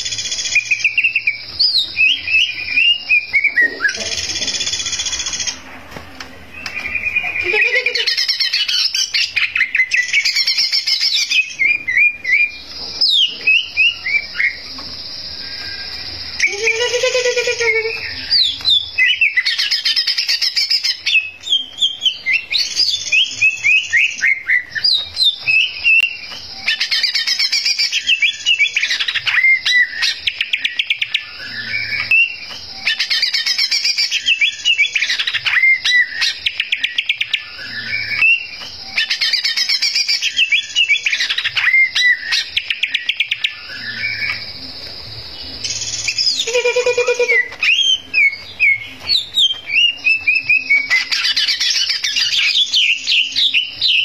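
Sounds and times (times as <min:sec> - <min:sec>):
bird singing whistles and trills: 0:00.0 - 0:05.8, 0:06.5 - 0:54.0.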